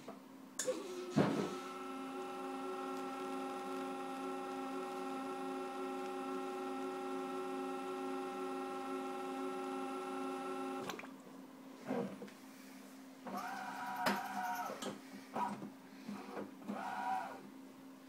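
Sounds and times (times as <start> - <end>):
coffee machine pump humming: 0.6 - 11.0.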